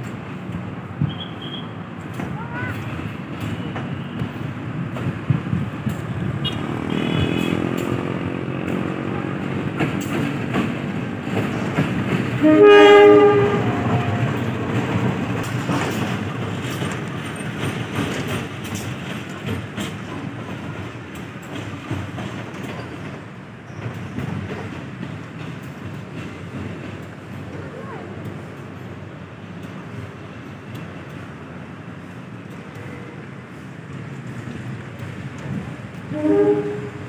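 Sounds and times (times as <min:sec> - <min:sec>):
diesel locomotive engine rumble: 0:00.0 - 0:37.0
wheels clacking over rail joints: 0:01.9 - 0:37.0
locomotive horn blast: 0:06.4 - 0:07.9, 0:12.4 - 0:14.2, 0:36.1 - 0:37.0.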